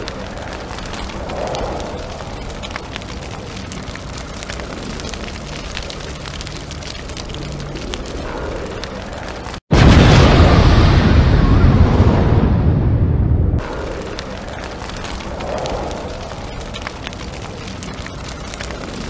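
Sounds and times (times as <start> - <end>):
small crackles and pops: 0.0 - 9.7, 13.6 - 19.0
steady rumbling: 0.0 - 19.0.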